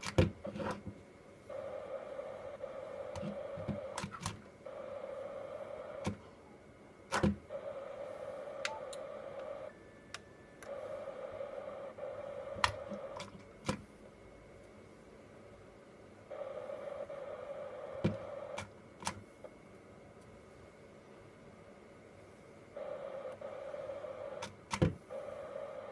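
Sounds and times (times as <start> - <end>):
radio speaker hiss: 0.0 - 9.8, 10.6 - 14.2, 16.2 - 19.6, 22.7 - 25.9
radio channel clicks: 2.7 - 4.5, 5.8 - 6.2, 8.5 - 9.7, 11.5 - 13.8, 24.2 - 25.3.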